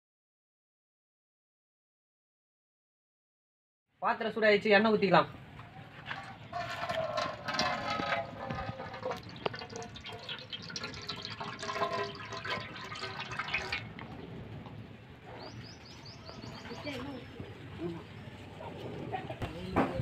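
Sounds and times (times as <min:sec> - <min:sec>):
oil pouring into metal pot: 0:06.6 - 0:14.1.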